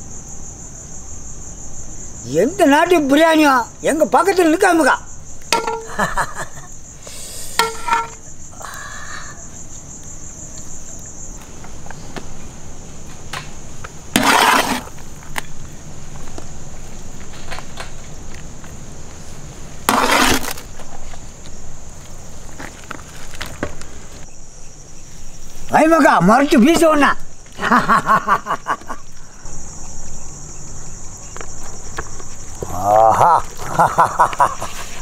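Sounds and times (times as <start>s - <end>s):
insects droning: 0.0s - 35.0s
rushing scrapes: 14.1s - 15.0s, 19.8s - 21.0s.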